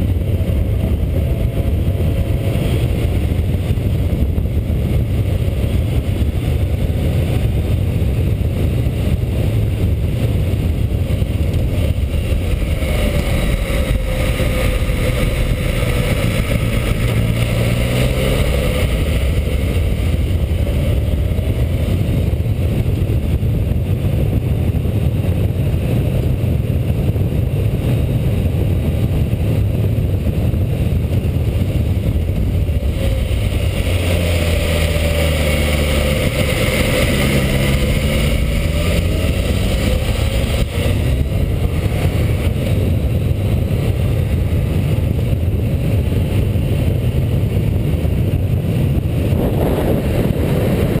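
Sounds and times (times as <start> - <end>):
motorcycle engine running: 0.0 - 51.0
wind rush: 0.0 - 51.0.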